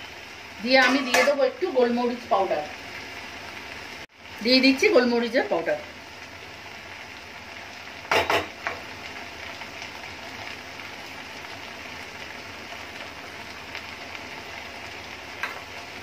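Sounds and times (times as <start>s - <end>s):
noodles sizzling in a pan: 0.0s - 16.0s
wooden spatula knocking on pan: 8.1s - 8.8s.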